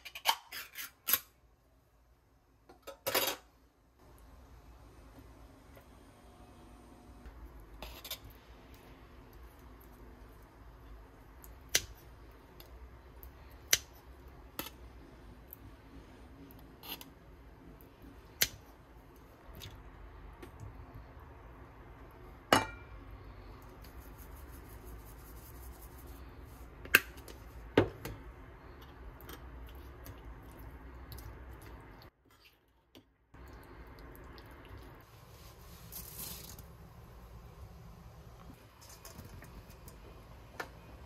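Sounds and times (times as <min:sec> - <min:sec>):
dry rustle of noodles: 0:35.0 - 0:36.8.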